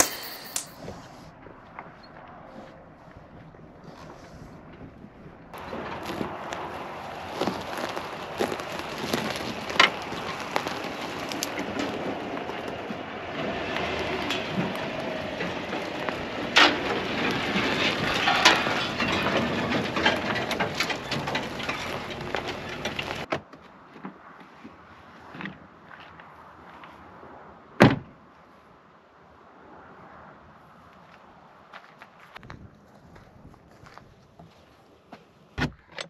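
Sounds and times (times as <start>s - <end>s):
tyres crackling over gravel and twigs: 5.5s - 27.1s
truck engine running: 5.6s - 23.3s.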